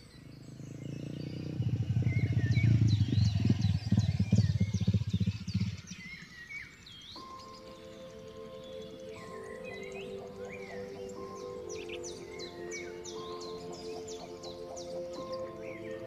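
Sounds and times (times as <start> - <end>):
birds chirping: 0.0 - 16.0
dirt bike engine running: 0.2 - 6.2
music: 6.6 - 16.0.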